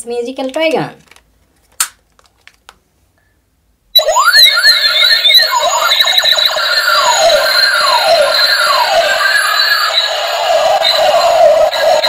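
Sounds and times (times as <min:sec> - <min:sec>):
toy blaster siren-like tones: 0:04.0 - 0:12.0.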